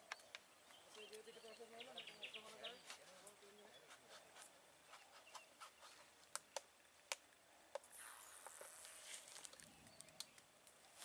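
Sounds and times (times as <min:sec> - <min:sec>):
faint high hiss: 0:00.0 - 0:11.0.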